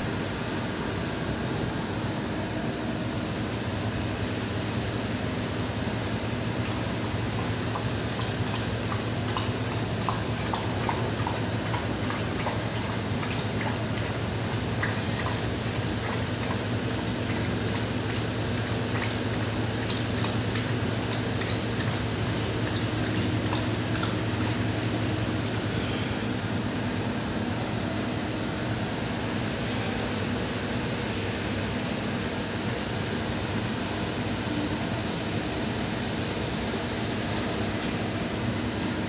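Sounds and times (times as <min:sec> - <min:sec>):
steady low hum: 0:00.0 - 0:39.0
dog lapping water from metal basin: 0:03.9 - 0:27.5.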